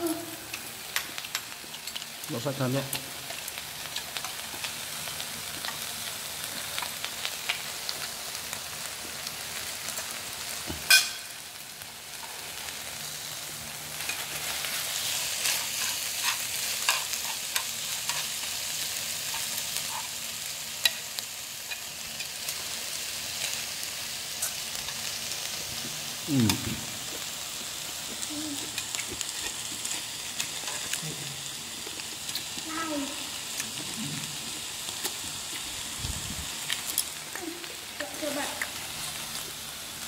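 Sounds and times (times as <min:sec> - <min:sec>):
meat and vegetables sizzling: 0:00.0 - 0:40.0.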